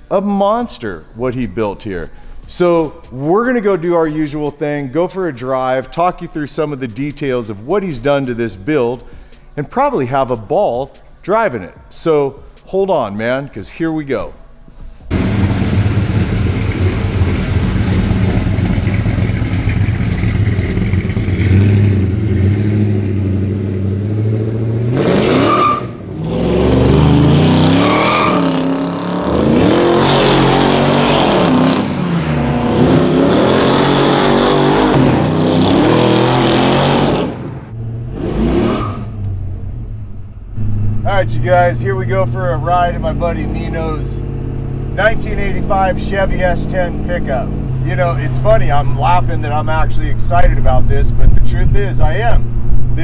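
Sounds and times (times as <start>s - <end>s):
car engine idling and revving: 14.6s - 53.0s.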